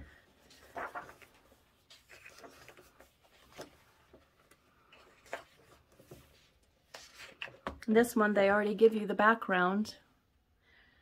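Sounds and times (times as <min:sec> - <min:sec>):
paper pages turning: 0:00.3 - 0:07.8.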